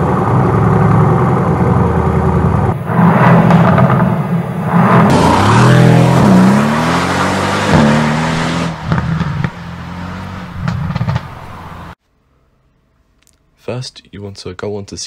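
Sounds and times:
car engine revving: 0.0s - 12.0s
loud rushing whoosh: 2.6s - 11.2s.

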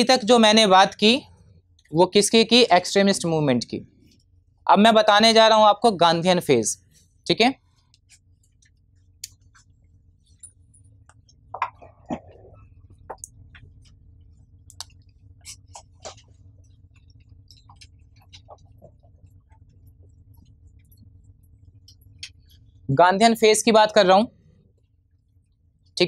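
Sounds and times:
faint room hum: 0.0s - 26.0s
marker squeaking on whiteboard: 15.4s - 16.3s.

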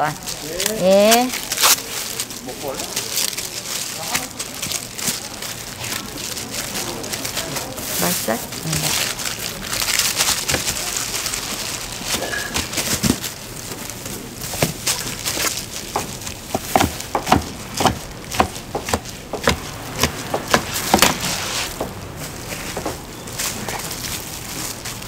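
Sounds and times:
market bustle: 0.0s - 25.0s
food preparation knocks and clicks: 14.5s - 22.0s.

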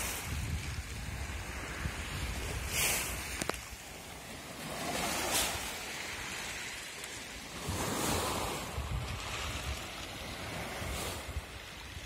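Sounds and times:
wind rumble on microphone: 0.0s - 6.8s, 7.4s - 12.0s
small waves washing on shore: 0.0s - 12.0s.

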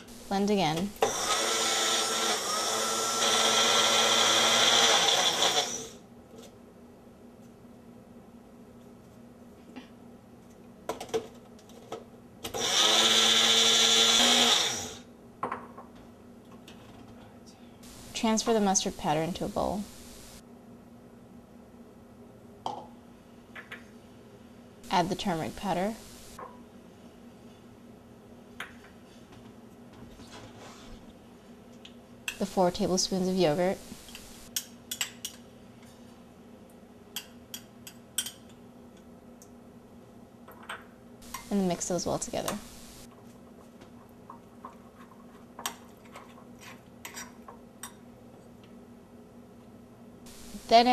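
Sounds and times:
blender motor whining: 1.0s - 6.0s, 12.5s - 15.0s.

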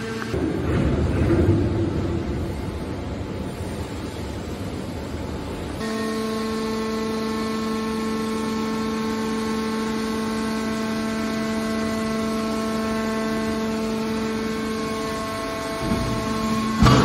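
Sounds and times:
hydraulic pump motor humming: 5.8s - 17.0s.

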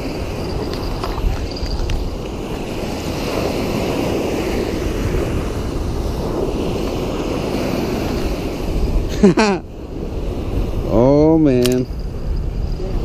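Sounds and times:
small waves washing on sand: 0.0s - 13.0s
wind on microphone: 0.0s - 13.0s.

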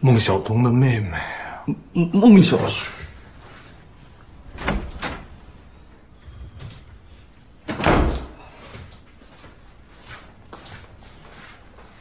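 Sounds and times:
door clicks: 4.5s - 5.3s
door shutting thud: 4.5s - 5.3s, 7.7s - 8.4s.

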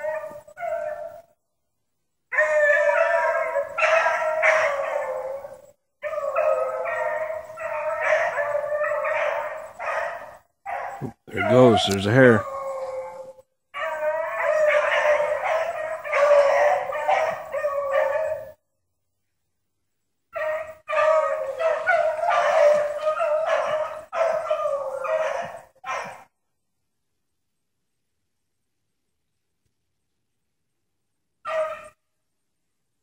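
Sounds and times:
hounds baying: 0.0s - 1.3s, 2.3s - 18.5s, 20.3s - 26.3s, 31.5s - 32.0s.

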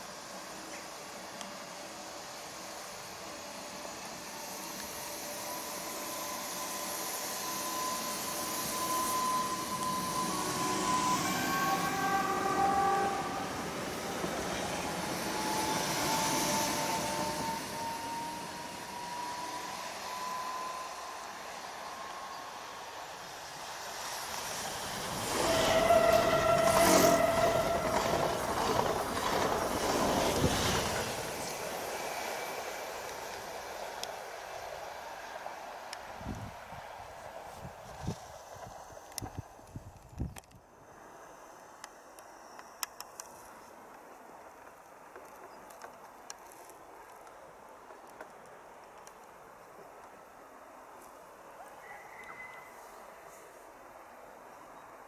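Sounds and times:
train rolling hiss: 0.0s - 39.5s
electric train motor whine: 0.1s - 31.5s.

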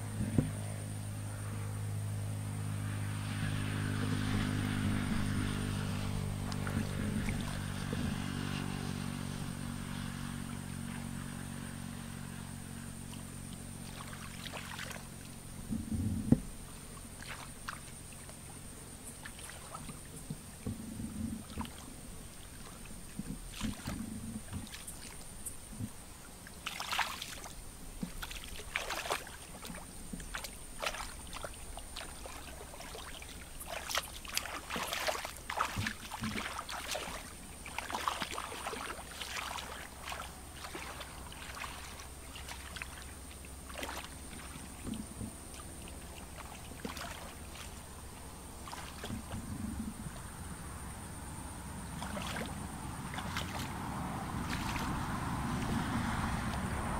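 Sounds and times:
muddy water splashing: 0.0s - 56.9s.

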